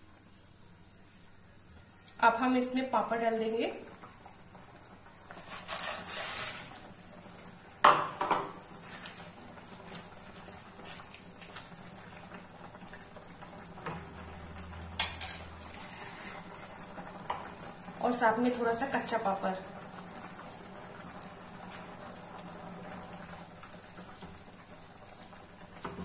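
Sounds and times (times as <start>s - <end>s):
rustle of fried pieces dropping: 5.4s - 6.9s, 8.8s - 10.2s.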